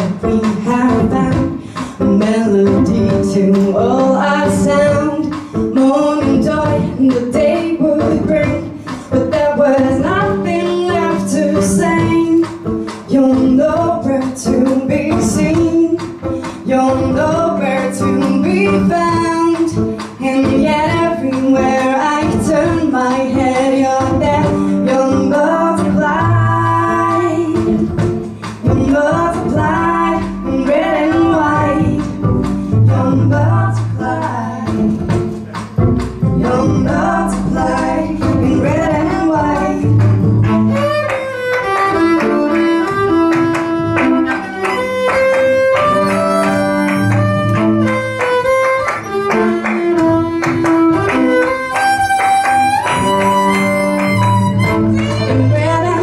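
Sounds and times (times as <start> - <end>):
woman singing with vibrato: 0.0 - 35.4, 36.3 - 40.6, 52.8 - 56.0
violin bowed: 36.7 - 56.0.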